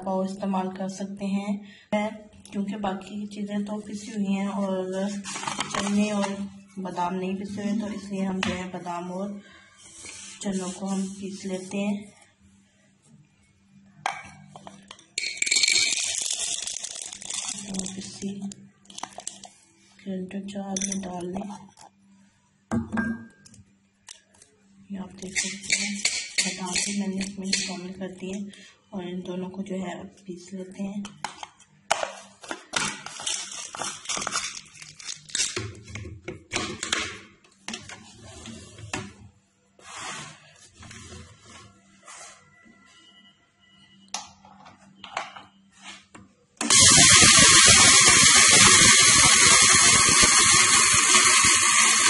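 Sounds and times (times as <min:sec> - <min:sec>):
dry grains pouring rattle: 0:15.5 - 0:18.1.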